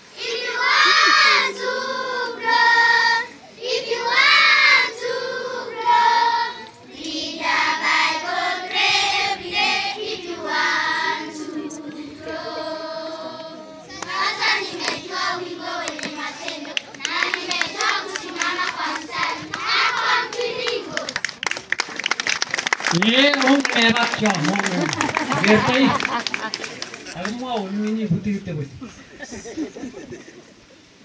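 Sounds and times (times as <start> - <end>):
girls choir singing: 0.0 - 21.2.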